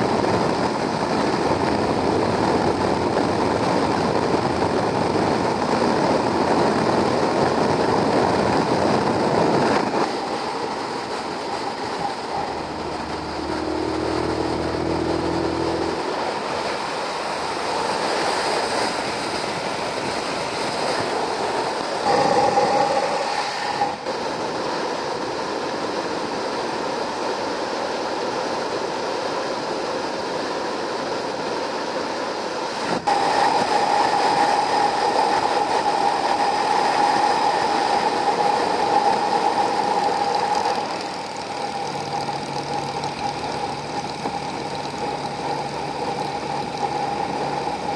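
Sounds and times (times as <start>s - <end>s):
humming drone: 0.0s - 24.1s, 33.1s - 47.9s
wind rush on microphone: 0.0s - 47.9s
motorcycle engine: 7.6s - 19.1s, 38.2s - 47.9s.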